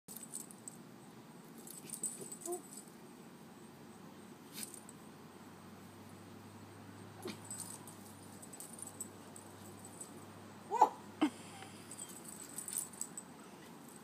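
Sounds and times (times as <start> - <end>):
faint jingling: 0.1 - 0.8, 1.5 - 3.0, 6.5 - 10.5, 11.5 - 14.0
dog high cry: 10.7 - 11.0.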